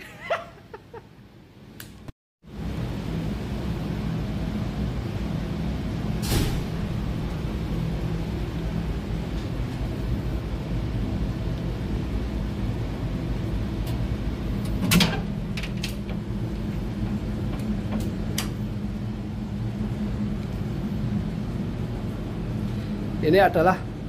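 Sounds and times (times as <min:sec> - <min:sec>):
engine room machinery hum: 0:00.0 - 0:24.0.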